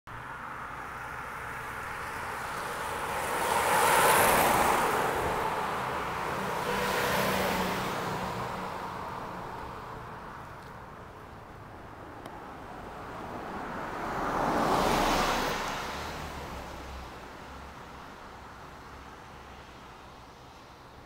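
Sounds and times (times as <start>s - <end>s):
car passing by: 0.2s - 10.7s, 12.7s - 20.7s
quieter vehicle passing: 0.3s - 10.7s, 12.7s - 17.1s.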